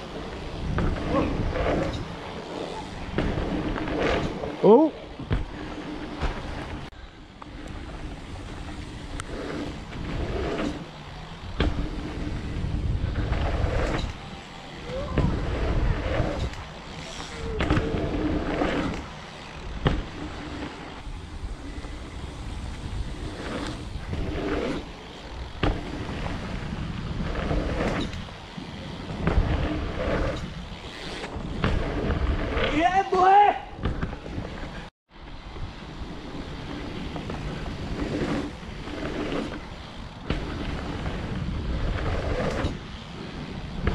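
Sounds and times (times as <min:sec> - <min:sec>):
wind rumbling on microphone: 0:00.0 - 0:32.9, 0:33.7 - 0:43.9
bike tyres rolling on dirt: 0:00.0 - 0:43.9
bike knocking over bumps: 0:00.5 - 0:04.4, 0:05.1 - 0:06.8, 0:09.8 - 0:14.2, 0:14.8 - 0:21.1, 0:22.6 - 0:32.8, 0:33.8 - 0:34.6, 0:39.4 - 0:42.9.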